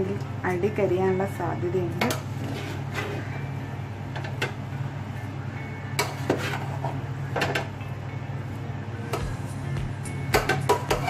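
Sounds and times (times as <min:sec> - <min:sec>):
steady low hum: 0:00.0 - 0:11.0
spoon scraping metal pot: 0:10.7 - 0:11.0.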